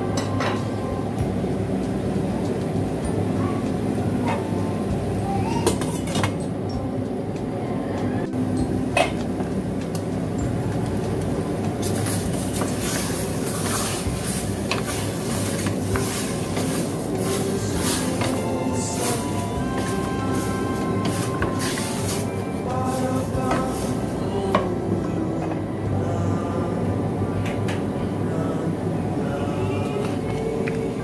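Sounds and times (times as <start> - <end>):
steady low rumble: 0.0 - 5.4, 6.6 - 31.0
chicken sizzling in a pot: 10.5 - 24.3
spatula scraping a pot: 12.0 - 24.2.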